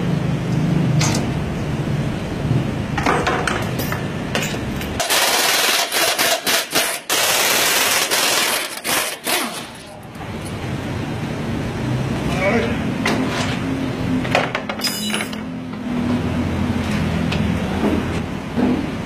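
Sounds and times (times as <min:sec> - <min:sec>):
workshop clatter and clicks: 0:00.4 - 0:01.5, 0:02.4 - 0:10.7, 0:13.0 - 0:19.0
pneumatic impact wrench hammering: 0:04.4 - 0:09.8.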